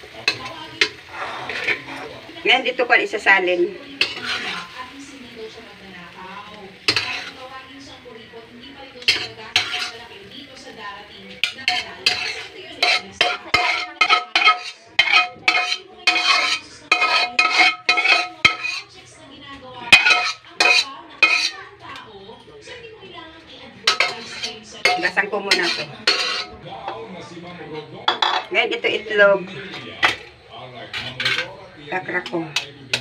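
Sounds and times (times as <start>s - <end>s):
metal utensil scraping a wok: 0.1s - 5.4s, 6.8s - 7.6s, 9.0s - 10.6s, 11.2s - 19.0s, 19.8s - 21.7s, 23.8s - 26.6s, 28.1s - 33.0s.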